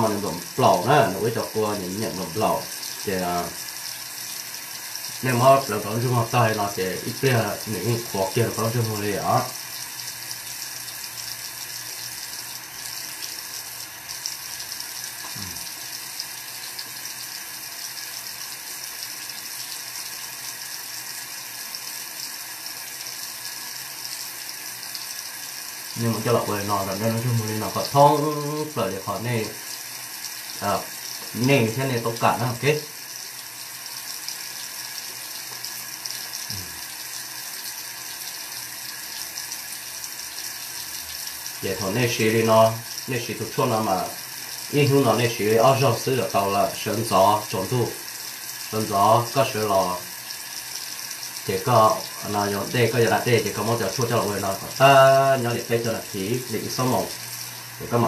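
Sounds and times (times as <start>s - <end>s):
short low vocal sound: 15.3s - 15.7s, 36.5s - 36.8s.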